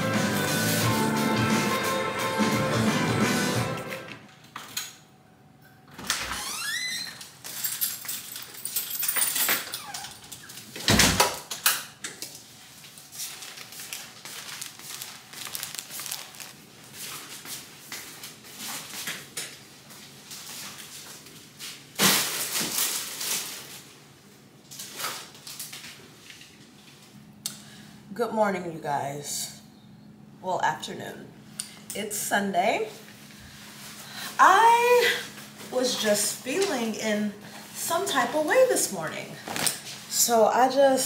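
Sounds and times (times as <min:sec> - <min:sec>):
door opening and shutting: 0:05.9 - 0:07.4, 0:09.5 - 0:11.4
rustling: 0:13.1 - 0:17.6.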